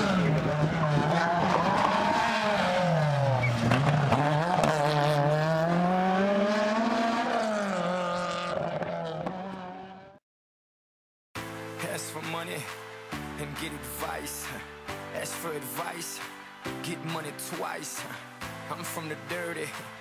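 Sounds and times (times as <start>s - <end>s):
rally car engine revving: 0.0s - 10.2s.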